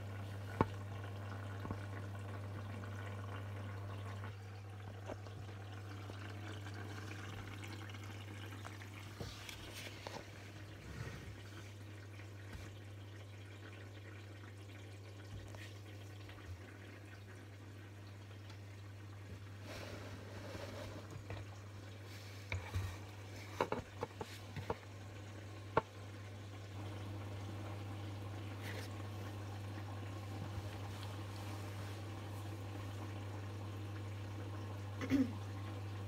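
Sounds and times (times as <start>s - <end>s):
washing machine humming: 0.0s - 36.0s
water sloshing in drum: 14.8s - 33.8s.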